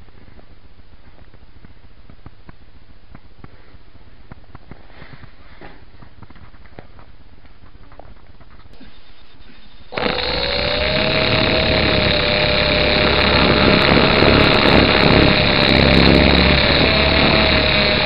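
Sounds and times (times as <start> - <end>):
model helicopter motor whine: 8.8 - 18.0.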